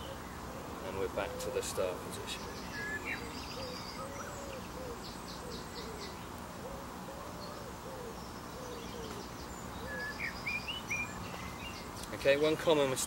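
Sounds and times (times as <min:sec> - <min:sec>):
wood pigeon cooing: 0:00.0 - 0:02.1, 0:02.7 - 0:10.2.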